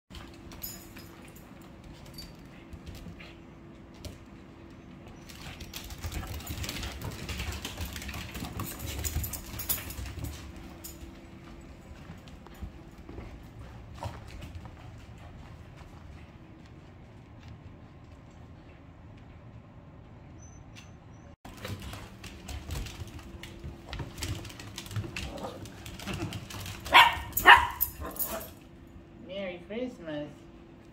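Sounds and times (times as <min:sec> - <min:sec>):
dog claws clicking on wooden floor: 0:05.3 - 0:11.1, 0:21.6 - 0:28.6
dog barking: 0:26.9 - 0:28.6.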